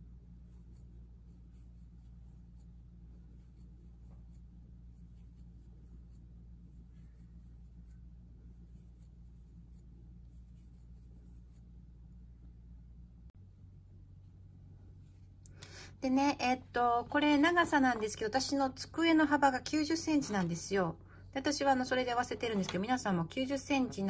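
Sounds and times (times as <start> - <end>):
crochet hook scratching yarn: 0.0 - 12.0, 14.9 - 15.5
steady low hum: 0.0 - 24.0.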